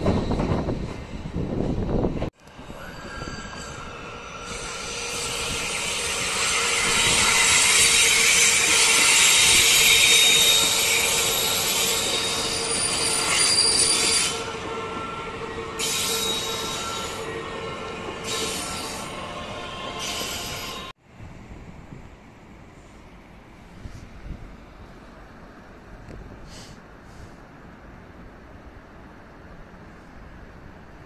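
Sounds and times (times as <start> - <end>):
train wheels squealing: 0.0 - 1.6, 2.5 - 20.9
train running noise: 0.0 - 31.0.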